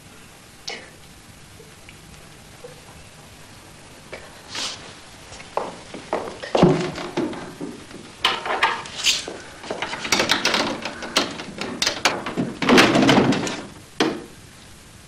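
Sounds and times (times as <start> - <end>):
loud clatter: 6.6 - 14.2
wood and glass cabinet door rattling: 6.6 - 14.3.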